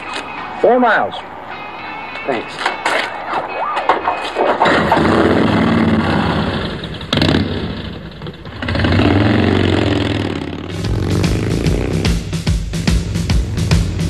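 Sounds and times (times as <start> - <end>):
motorcycle engine revving: 4.7 - 14.0.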